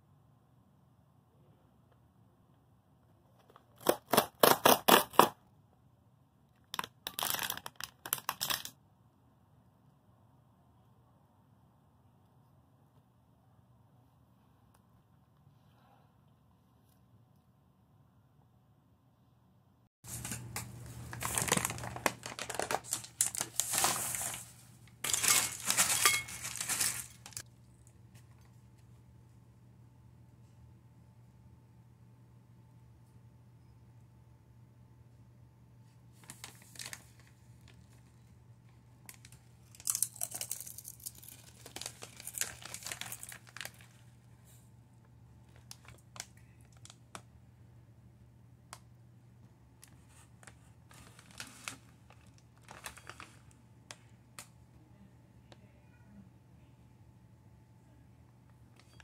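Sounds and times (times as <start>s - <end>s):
plastic wrapper crinkling: 20.1s - 27.9s, 36.2s - 38.1s, 39.0s - 44.2s, 45.5s - 47.3s, 49.8s - 54.5s.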